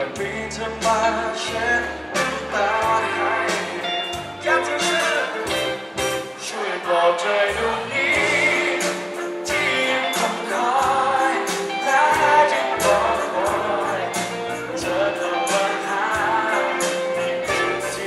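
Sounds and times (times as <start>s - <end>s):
male vocalist singing: 0.0s - 5.5s, 6.3s - 18.0s
bass guitar: 0.0s - 6.5s, 7.5s - 18.0s
electric guitar: 0.0s - 6.5s
drums: 0.0s - 6.9s, 7.5s - 18.0s.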